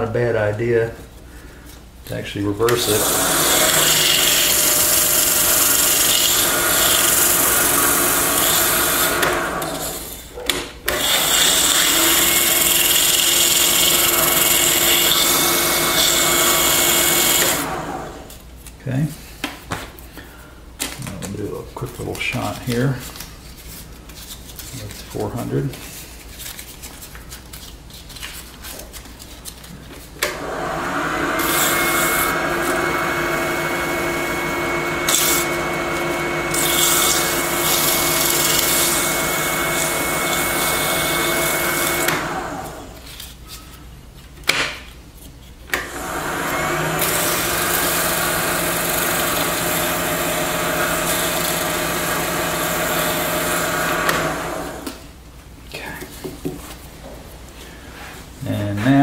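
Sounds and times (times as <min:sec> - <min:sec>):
lathe motor hum: 0:02.8 - 0:10.2, 0:10.9 - 0:18.3, 0:30.2 - 0:43.0, 0:45.8 - 0:54.9.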